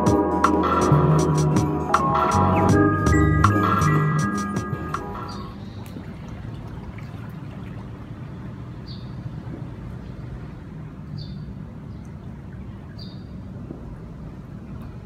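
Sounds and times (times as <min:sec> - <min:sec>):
distant city traffic rumble: 0:00.0 - 0:15.0
bird chirping: 0:08.8 - 0:09.3, 0:12.8 - 0:13.4.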